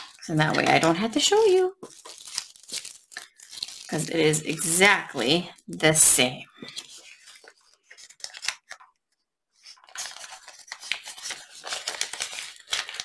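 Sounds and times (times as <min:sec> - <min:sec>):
plastic bag crinkling: 0:00.0 - 0:04.8, 0:09.8 - 0:13.0.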